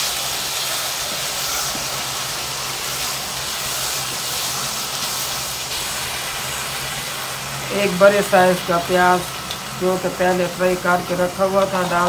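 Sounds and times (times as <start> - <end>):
vegetables sizzling in a wok: 0.0 - 12.0
spatula stirring in a wok: 0.1 - 7.7.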